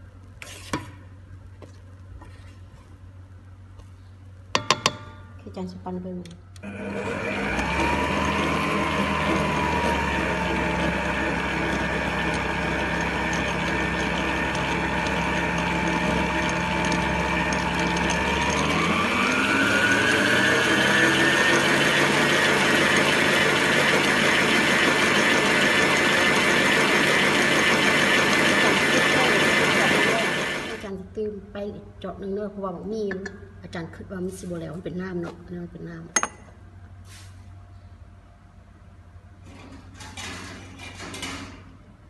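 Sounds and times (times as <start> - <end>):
stand mixer motor whine: 6.6 - 30.9.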